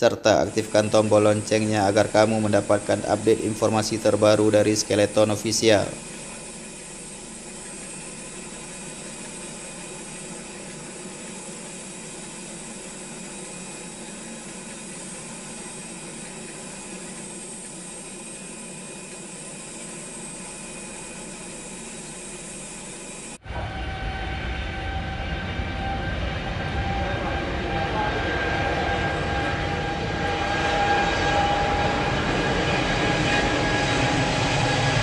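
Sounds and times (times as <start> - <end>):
steady tones: 0.0 - 26.6
jet airliner hiss and hum: 0.0 - 35.0.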